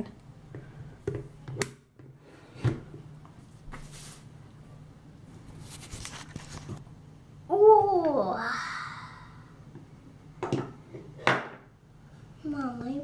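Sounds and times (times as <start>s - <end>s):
soft rubbing and brushing: 3.3s - 4.4s, 5.3s - 6.8s.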